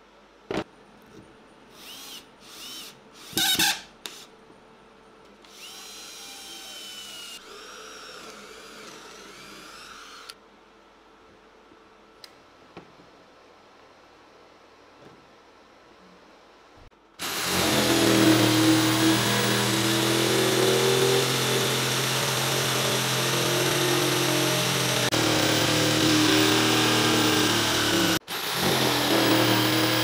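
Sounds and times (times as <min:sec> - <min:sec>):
electric jigsaw cutting wood: 0:05.5 - 0:10.4, 0:17.2 - 0:30.0.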